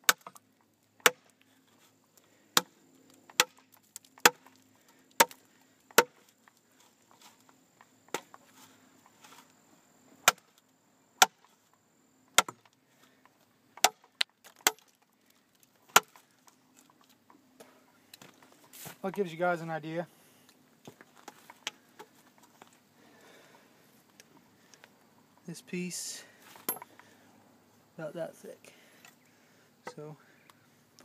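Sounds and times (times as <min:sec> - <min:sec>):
knife chopping into log: 0:03.3 - 0:03.6, 0:06.0 - 0:06.2, 0:10.2 - 0:10.4, 0:12.4 - 0:12.6, 0:15.9 - 0:16.1.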